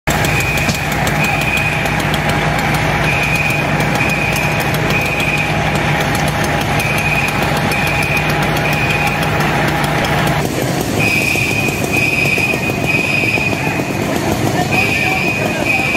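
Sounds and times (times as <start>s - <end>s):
fire engine running: 0.0s - 15.9s
high electronic beeps: 0.1s - 1.9s, 3.0s - 5.6s, 6.8s - 9.3s, 11.0s - 13.6s, 14.7s - 15.9s.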